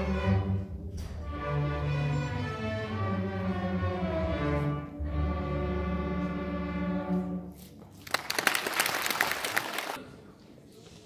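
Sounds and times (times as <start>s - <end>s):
string orchestra playing: 0.0s - 8.0s
audience applause: 8.0s - 10.0s.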